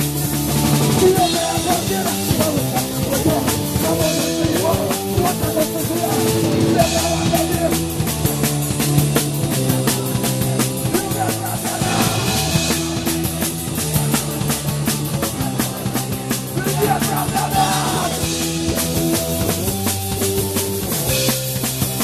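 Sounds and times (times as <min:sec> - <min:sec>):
distorted guitars and bass: 0:00.0 - 0:22.0
drum kit: 0:00.0 - 0:22.0.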